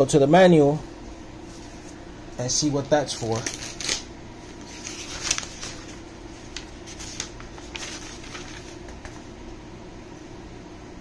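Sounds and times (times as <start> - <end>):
low steady hum: 0.0 - 11.0
paper rustling and crinkling: 3.0 - 9.2.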